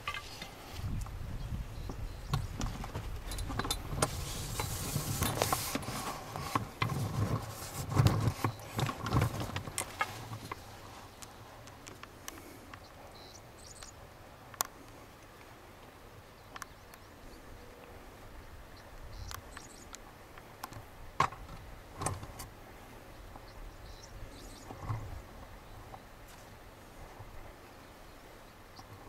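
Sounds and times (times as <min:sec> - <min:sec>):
short scrapes and clicks: 0:03.4 - 0:10.6
plants rustling on cloth: 0:03.8 - 0:11.7.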